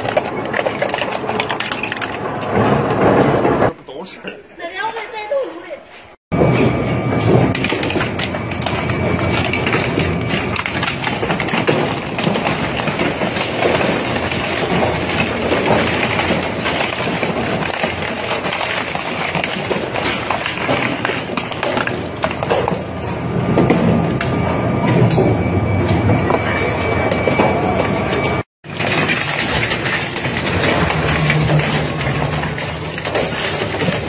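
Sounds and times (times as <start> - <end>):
shredder crunching and cracking: 7.2 - 22.8, 28.6 - 34.0.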